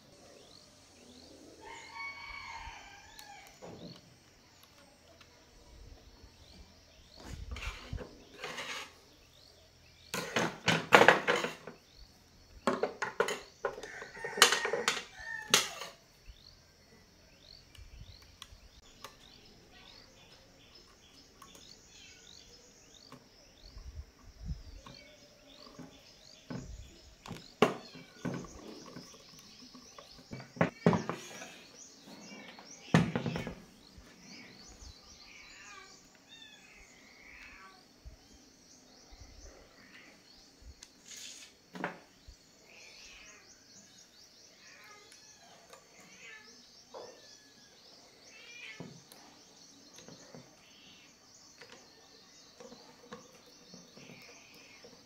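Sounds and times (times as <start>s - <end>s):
insects chirping: 0.0s - 55.0s
hard objects knocking and clattering: 10.1s - 11.8s, 12.6s - 15.9s, 25.6s - 31.3s.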